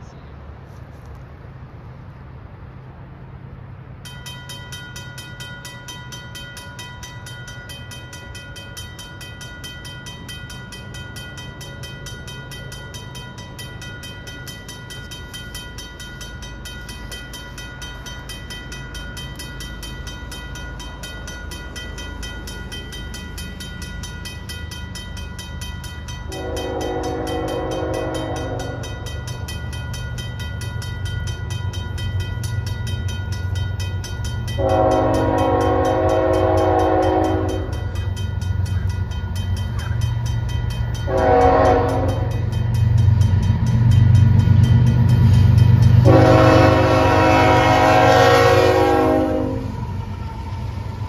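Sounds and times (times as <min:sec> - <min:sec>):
diesel locomotive rumble: 0:00.0 - 0:51.0
crossing bell ringing: 0:03.8 - 0:51.0
locomotive horn chord: 0:26.3 - 0:28.8, 0:34.6 - 0:37.9, 0:41.1 - 0:42.5, 0:46.0 - 0:49.8.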